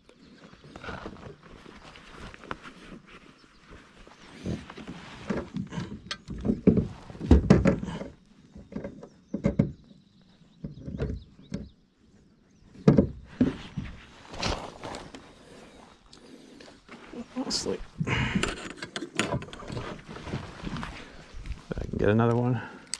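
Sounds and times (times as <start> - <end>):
knocks and thumps on kayak: 4.4 - 11.8, 12.8 - 14.0.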